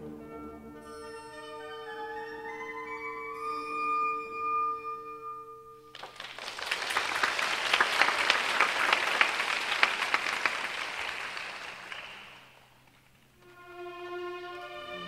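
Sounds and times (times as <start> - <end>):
audience applauding: 5.9 - 12.8.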